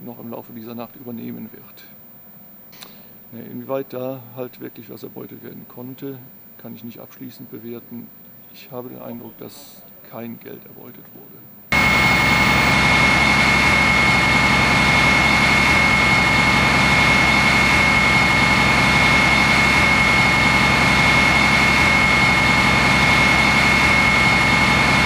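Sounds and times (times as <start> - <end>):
high-pitched whine: 2.8 - 25.0
heavy engine running: 11.7 - 25.0.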